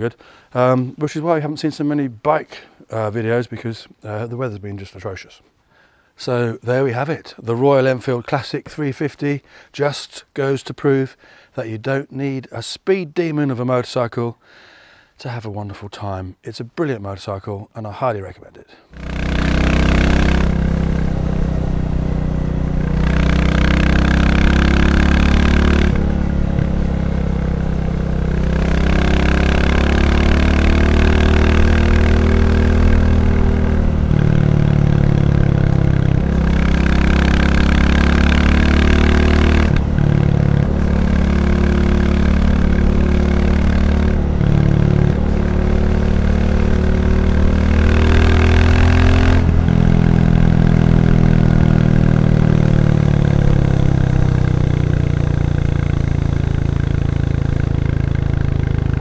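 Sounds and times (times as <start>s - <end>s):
motorcycle engine revving: 18.9s - 59.0s.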